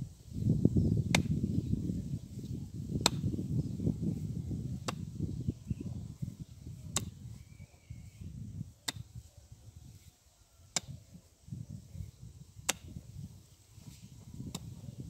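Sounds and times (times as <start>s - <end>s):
digging tool striking clay: 1.1s - 1.4s, 3.0s - 3.4s, 4.8s - 5.1s, 6.9s - 7.2s, 8.8s - 9.1s, 10.7s - 11.0s, 12.6s - 13.0s, 14.5s - 14.8s.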